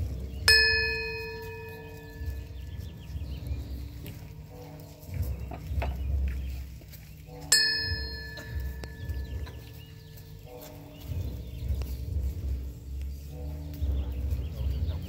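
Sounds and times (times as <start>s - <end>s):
bell ringing: 0.5s - 2.5s, 7.5s - 9.6s.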